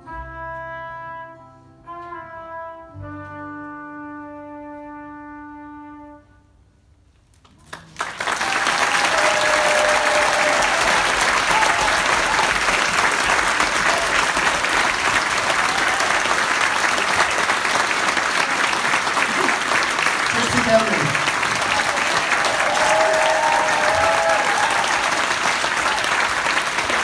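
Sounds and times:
audience applause: 7.6s - 27.0s.

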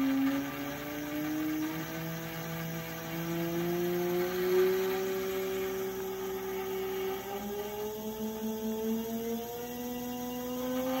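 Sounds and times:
motor whine and blade whir: 0.0s - 11.0s.

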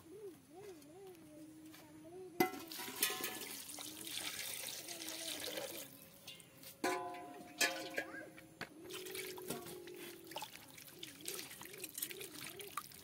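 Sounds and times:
metal bowl clank: 2.4s - 3.5s, 6.3s - 8.4s
water pouring: 2.7s - 6.0s, 8.9s - 13.0s.

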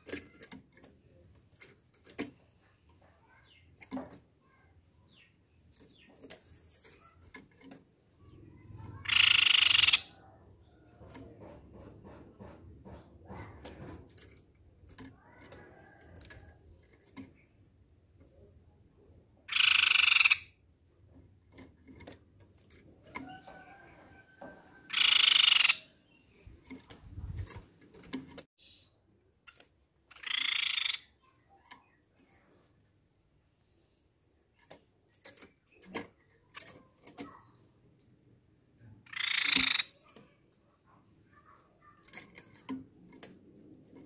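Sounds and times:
faint clicks and rustles: 0.0s - 9.0s, 10.4s - 18.6s, 20.9s - 24.9s, 26.1s - 28.5s, 31.3s - 39.0s, 40.0s - 44.0s
bird rasping calls: 8.2s - 10.8s, 19.5s - 20.6s, 23.2s - 26.0s, 29.5s - 31.3s, 39.0s - 42.7s.

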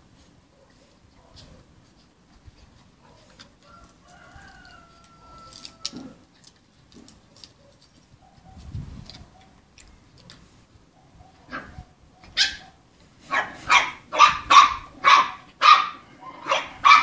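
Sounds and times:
puppies scuffing on paving: 0.0s - 15.7s.

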